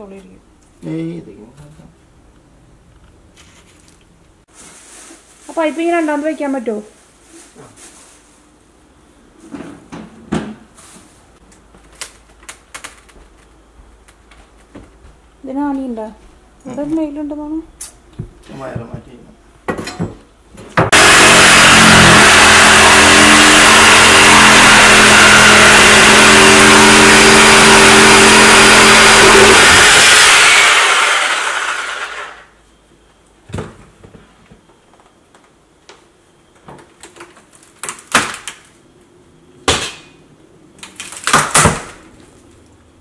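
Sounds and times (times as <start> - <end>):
reciprocating saw cutting: 20.9 - 32.4.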